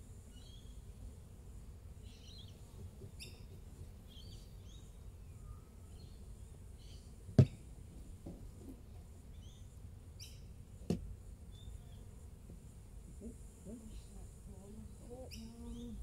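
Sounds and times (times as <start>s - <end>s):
birds chirping: 2.0s - 7.7s, 13.0s - 16.0s.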